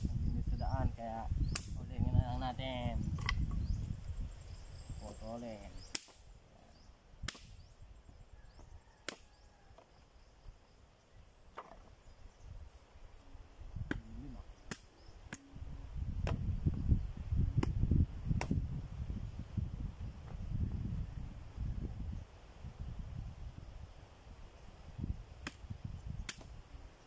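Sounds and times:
machete chopping branches: 1.5 - 1.8, 5.8 - 6.3, 7.2 - 7.6, 9.0 - 9.3, 13.8 - 15.5, 16.2 - 16.5, 18.4 - 18.6, 25.4 - 26.6.

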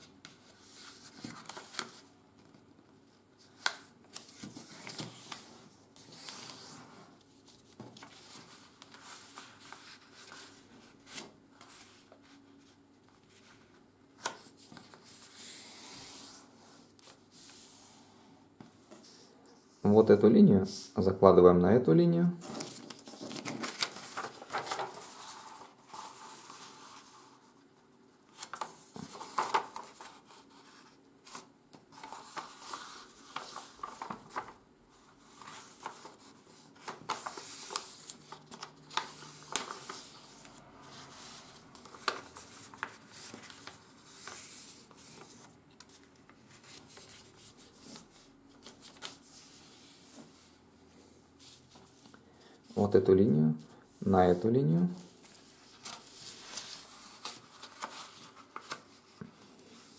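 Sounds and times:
paper rustling and sliding: 0.0 - 2.5, 3.4 - 19.8, 22.4 - 27.6, 28.3 - 52.2, 55.0 - 59.9
paper crackling as creased: 22.4 - 27.2, 32.0 - 34.6, 35.3 - 47.2, 55.8 - 58.9.

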